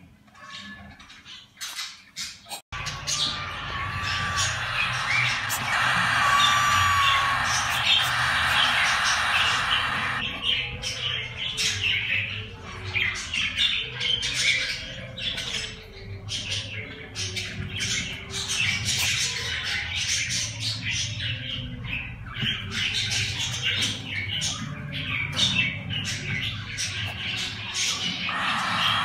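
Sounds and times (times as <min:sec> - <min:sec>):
bird chicks squawking: 0:02.8 - 0:11.0, 0:24.4 - 0:29.0.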